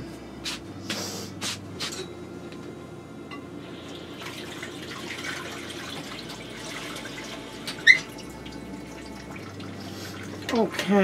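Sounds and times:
brief high squeak: 0:07.8 - 0:08.1.

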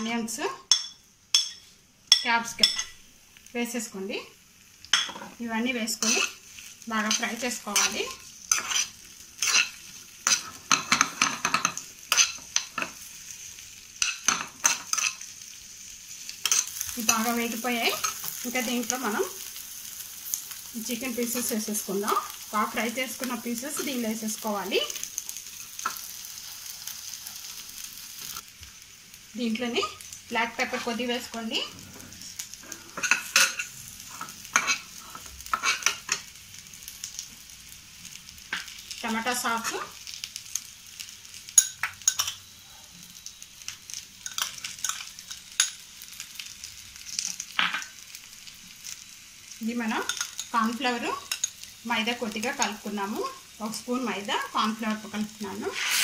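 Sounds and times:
hot oil sizzling: 0:00.0 - 0:56.0
spoon scraping frying pan: 0:04.9 - 0:13.1, 0:14.0 - 0:15.3, 0:16.4 - 0:19.5, 0:31.6 - 0:36.3, 0:41.5 - 0:42.4, 0:44.2 - 0:45.8, 0:55.0 - 0:56.0.

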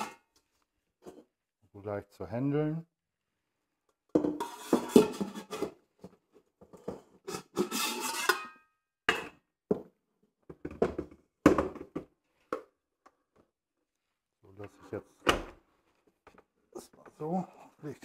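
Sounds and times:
metal bowls knocking and clanking: 0:04.2 - 0:05.8, 0:06.6 - 0:09.9.

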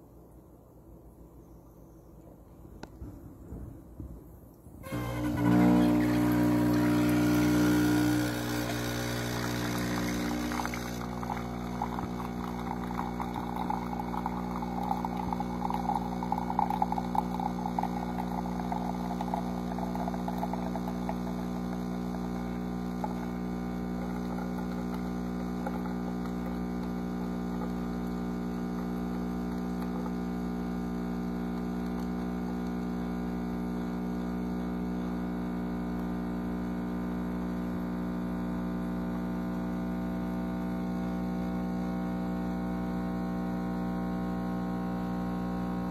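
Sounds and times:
coffee sputtering into mug: 0:04.8 - 0:30.2
espresso machine pump humming: 0:04.8 - 0:45.9.

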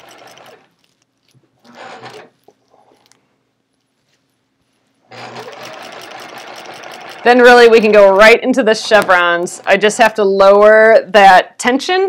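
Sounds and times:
sewing machine stitching: 0:00.0 - 0:00.7, 0:01.6 - 0:02.5, 0:05.0 - 0:09.8.

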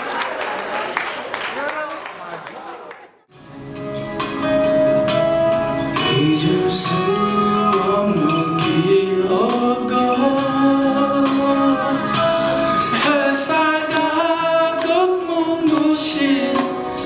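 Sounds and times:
instrumental backing music: 0:03.3 - 0:17.0
man singing into microphone: 0:06.0 - 0:17.0.

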